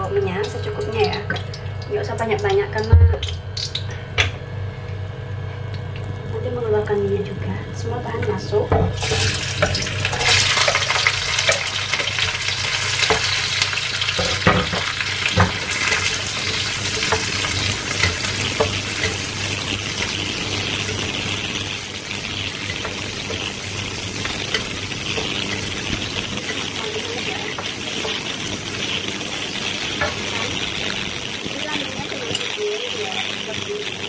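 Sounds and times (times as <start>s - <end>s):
food sizzling in hot oil: 0.0s - 6.4s, 8.1s - 34.0s
steady low hum: 0.0s - 34.0s
spatula scraping and knocking wok: 8.7s - 33.6s.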